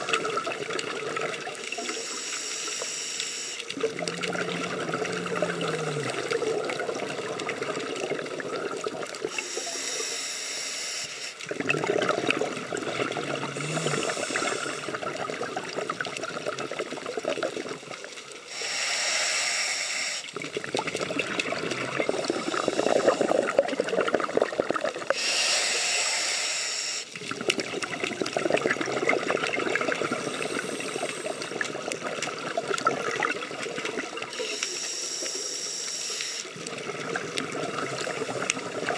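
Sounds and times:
crackling exhaled bubbles: 0.0s - 38.9s
regulator inhalation hissing: 1.8s - 3.7s, 9.2s - 11.4s, 13.5s - 15.0s, 18.5s - 20.3s, 22.1s - 23.6s, 25.1s - 27.2s, 30.0s - 31.6s, 34.4s - 36.5s.

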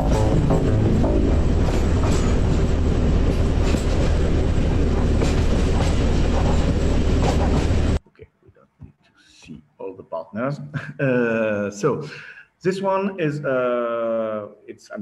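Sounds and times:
train rumbling on rails: 0.0s - 8.0s
wheels clicking over rail joints: 0.0s - 8.0s.

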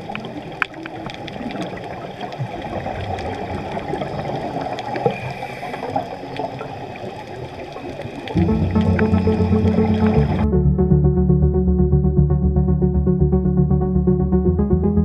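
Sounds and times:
faint underwater clicks: 0.0s - 10.4s
underwater watery rush: 0.0s - 10.4s.

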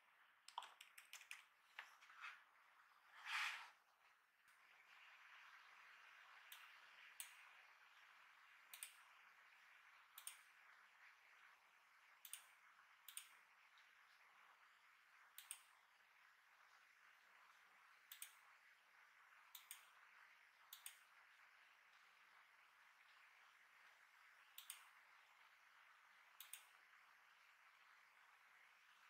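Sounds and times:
room tone hiss: 0.0s - 29.0s
computer mouse clicks: 0.5s - 2.0s, 6.5s - 7.4s, 8.7s - 9.0s, 10.1s - 10.5s, 12.2s - 13.4s, 15.3s - 15.8s, 18.1s - 18.4s, 19.5s - 20.0s, 20.7s - 21.1s, 24.5s - 25.0s, 26.4s - 26.8s.

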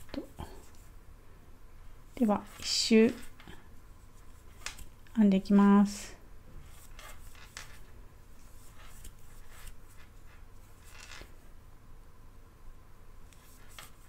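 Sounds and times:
scratchy yarn rustles: 0.0s - 1.0s, 2.0s - 11.4s, 13.3s - 14.0s.

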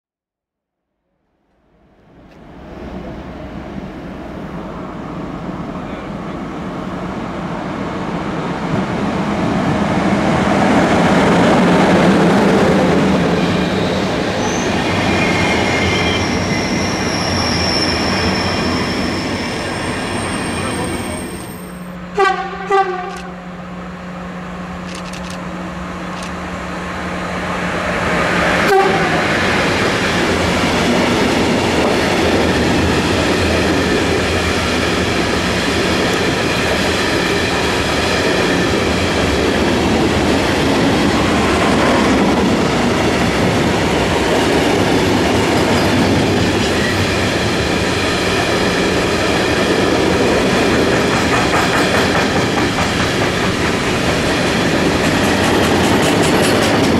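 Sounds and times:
locomotive horn blasts: 22.1s - 23.5s, 28.7s - 29.3s
train wheels clacking over rail joints: 44.0s - 56.9s.

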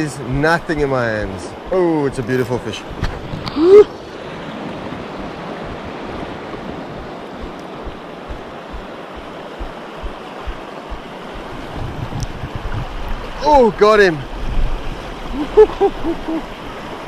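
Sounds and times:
river water rushing over rocks: 0.0s - 17.0s
wind buffeting microphone: 0.0s - 17.0s.

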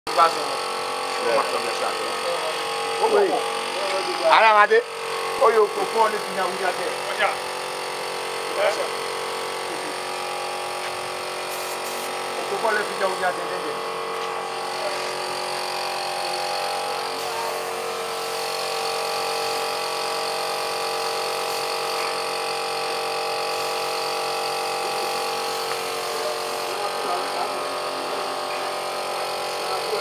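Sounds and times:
air compressor running: 0.1s - 30.0s
paint spray gun hissing: 0.2s - 30.0s.

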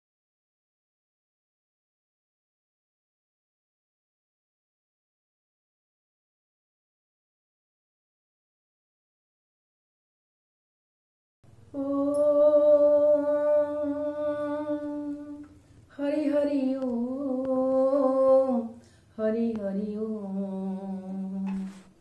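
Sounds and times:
woman humming: 11.7s - 21.9s.

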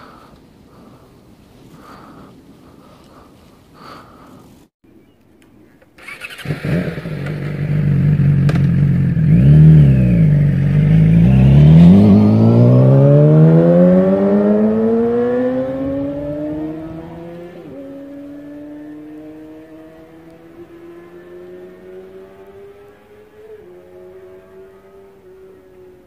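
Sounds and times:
motorcycle engine revving: 6.0s - 26.0s.

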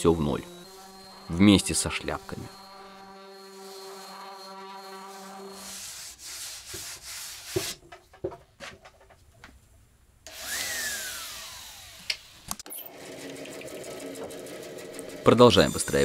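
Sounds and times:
hiss with falling whine: 0.0s - 5.8s
sanding strokes on wood: 0.0s - 7.8s.

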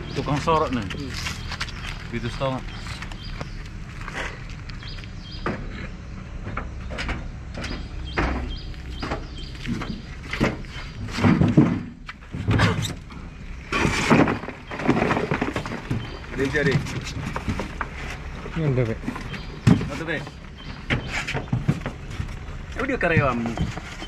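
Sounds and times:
plastic crates knocking: 7.0s - 12.8s, 13.7s - 24.0s.

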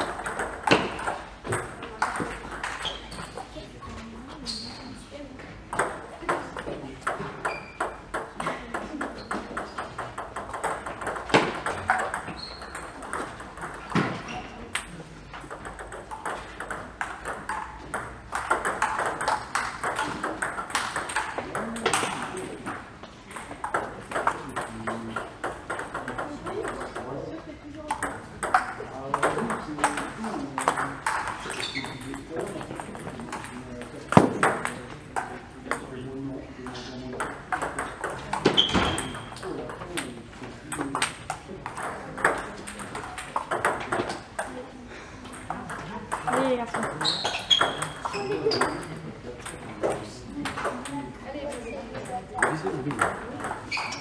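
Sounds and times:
table tennis balls clicking: 0.0s - 3.6s, 5.5s - 54.0s
brief high squeak: 53.7s - 54.0s.

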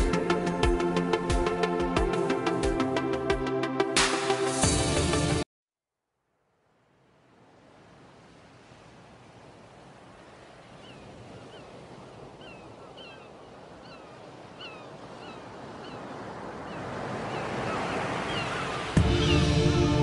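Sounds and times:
music: 0.0s - 5.4s, 19.0s - 20.0s.

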